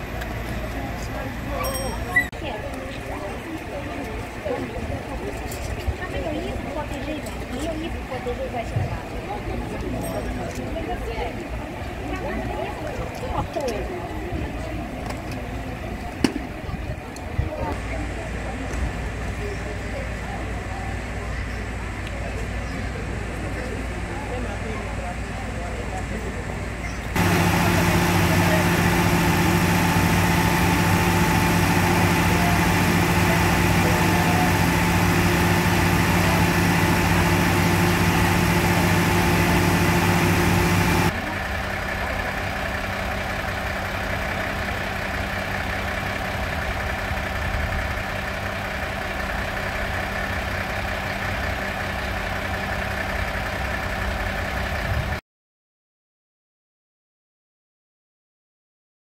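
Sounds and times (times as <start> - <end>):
diesel engines idling: 0.0 - 55.2
fire pump truck idling: 0.0 - 55.2.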